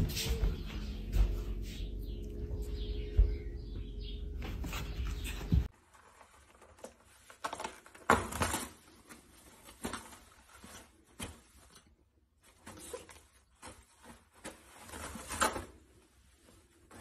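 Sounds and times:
steady hum: 0.0s - 5.7s.

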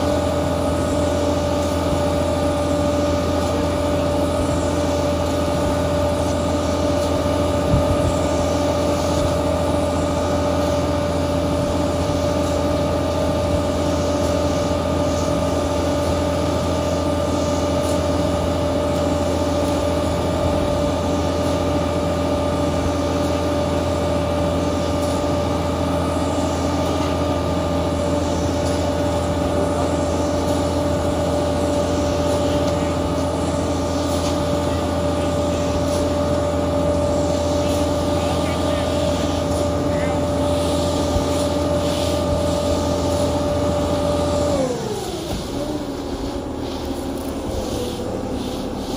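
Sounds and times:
diesel truck engine droning: 0.0s - 48.9s.

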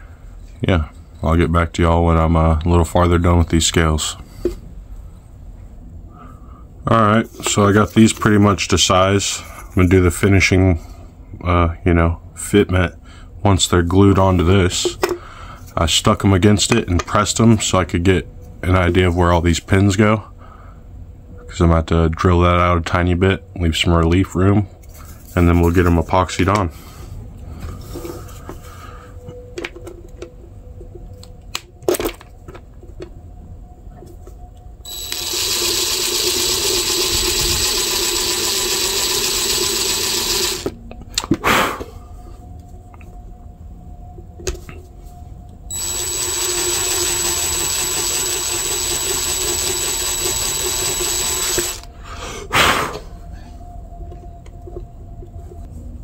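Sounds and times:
cordless drill whining: 34.9s - 40.8s, 45.7s - 51.9s.

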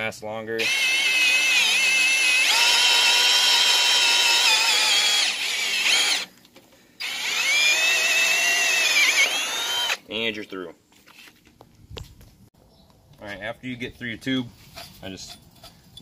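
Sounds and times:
drill hole saw cutting metal: 0.6s - 6.3s, 7.0s - 10.0s.

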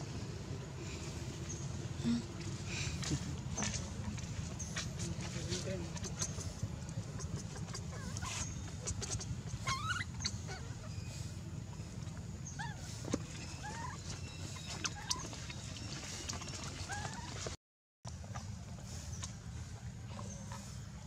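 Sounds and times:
steady low rumble: 0.0s - 16.4s
baby monkey squeaky crying: 7.2s - 11.1s, 12.4s - 15.5s, 16.9s - 17.4s.

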